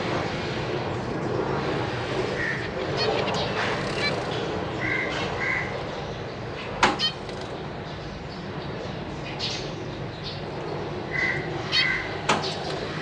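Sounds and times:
steady background noise: 0.0 - 13.0
finches giving nasal calls: 2.4 - 5.7, 6.6 - 9.0, 11.1 - 13.0.

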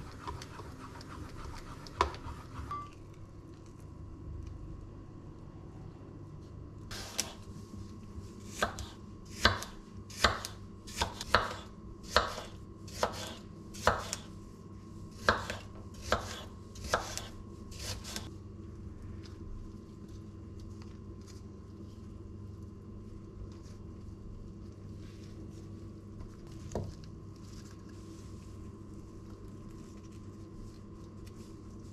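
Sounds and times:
low steady hum: 0.0 - 31.9
knife chopping on wooden board: 8.5 - 14.3, 15.2 - 18.3.

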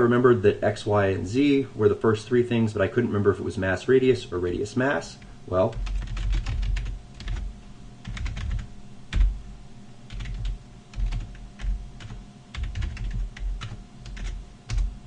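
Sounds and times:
typing on keyboard: 5.7 - 7.4, 8.0 - 9.3, 10.1 - 14.9.

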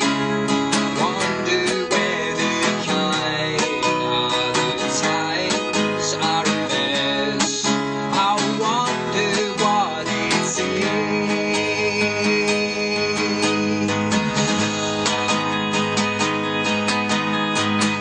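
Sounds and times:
electric guitar: 0.0 - 18.0
man singing: 0.0 - 18.0
strummed acoustic guitar: 0.0 - 18.0
electric bass: 11.0 - 18.0.

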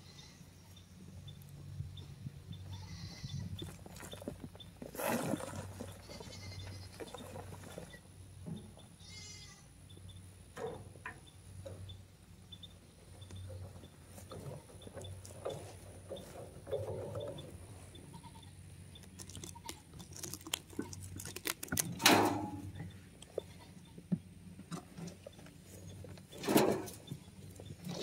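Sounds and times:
wheelbarrow pushed over grass: 3.1 - 8.7, 13.5 - 18.3, 24.8 - 28.0
shovel digging into compost: 4.9 - 5.8.

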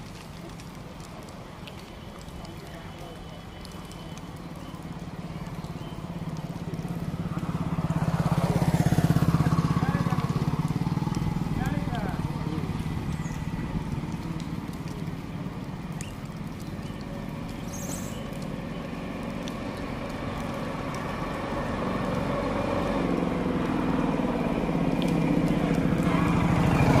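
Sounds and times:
motorcycle engine running: 6.9 - 14.2.

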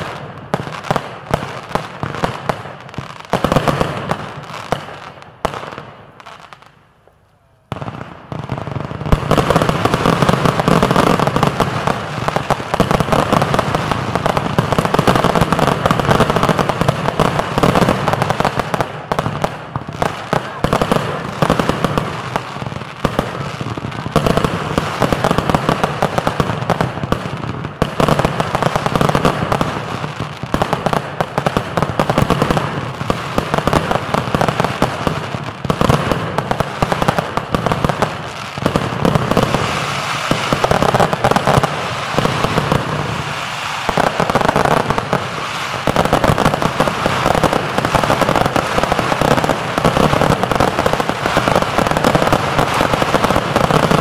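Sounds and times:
fireworks bangs and crackle: 0.0 - 54.0.

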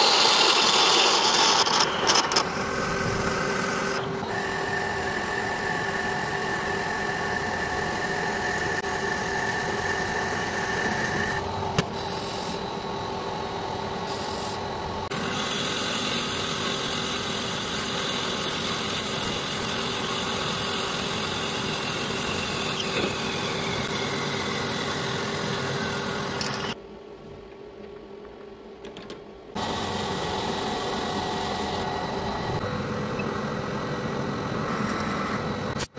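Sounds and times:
metal lathe humming: 0.0 - 26.8, 29.6 - 35.8
cutting tool hissing on metal: 14.0 - 26.8.

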